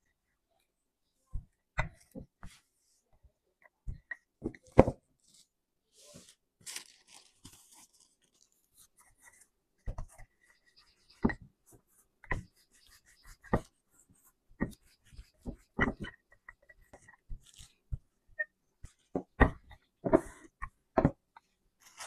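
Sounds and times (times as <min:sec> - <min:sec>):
plastic wrap crinkling: 0:06.2 - 0:08.6.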